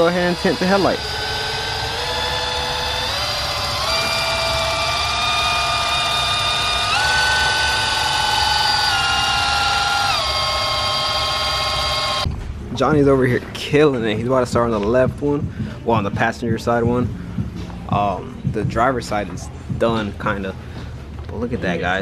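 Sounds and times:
polisher motor whine: 0.0 - 12.3.

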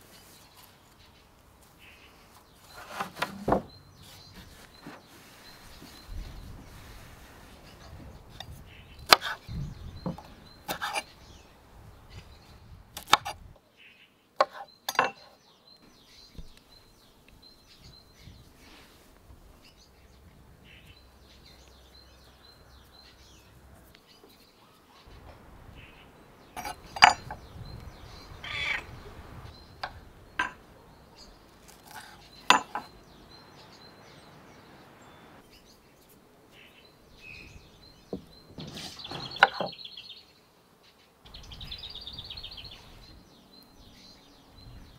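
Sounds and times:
soft handling sounds: 0.0 - 8.6
birds chirping: 0.0 - 44.9.

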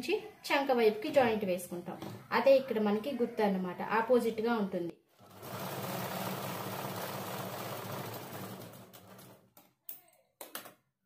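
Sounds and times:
sewing machine running: 5.2 - 9.5.

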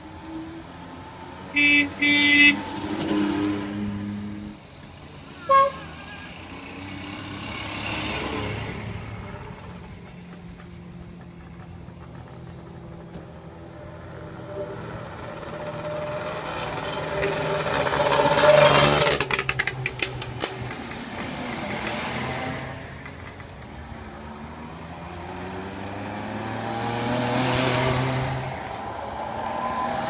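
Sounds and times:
two-stroke cars driving past: 0.2 - 30.0
car horn toot: 1.5 - 2.6, 5.4 - 6.4.

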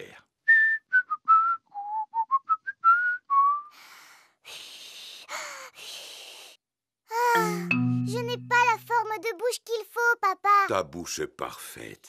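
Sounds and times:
man whistling a tune: 0.5 - 3.7.

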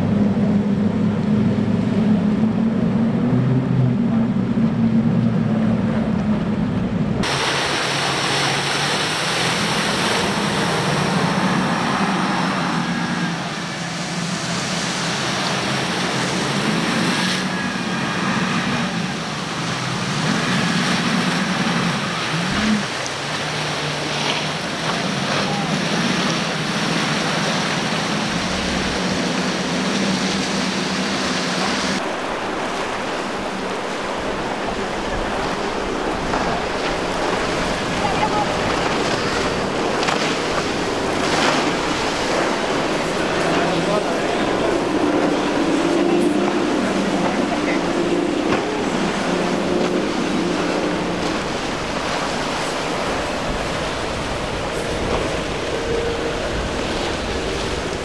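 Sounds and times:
boat engine drone: 0.0 - 58.0
rushing wake water: 0.0 - 58.0
waves washing: 0.0 - 58.0
wind on microphone: 24.0 - 58.0.

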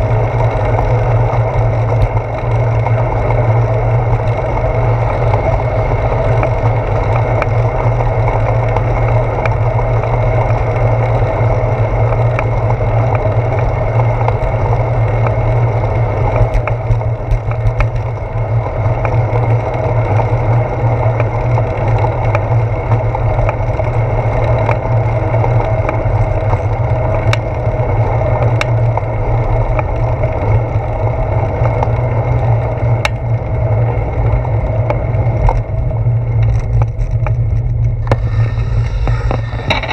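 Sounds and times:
clicks and rattles from bumps: 0.0 - 11.1, 16.3 - 19.8, 21.1 - 27.8, 36.4 - 39.9
wind and road rumble: 0.0 - 39.9.

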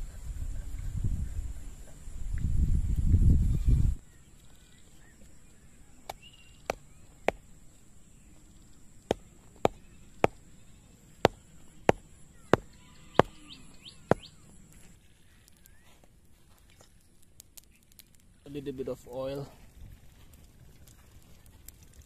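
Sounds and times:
tool knocking on bamboo stakes: 6.1 - 7.4, 9.1 - 10.4.

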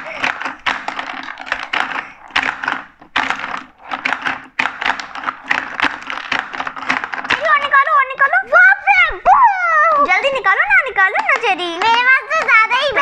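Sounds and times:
plastic levers clacking: 0.0 - 7.8
marbles rattling on plastic: 0.0 - 13.0.

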